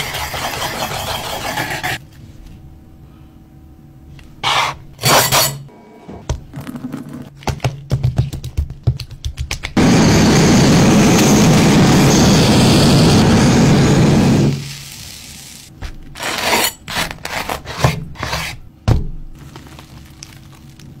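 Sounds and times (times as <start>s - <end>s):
knife sawing through toasted bread: 0.0s - 2.0s, 16.2s - 18.6s
blowtorch hissing: 9.8s - 15.6s.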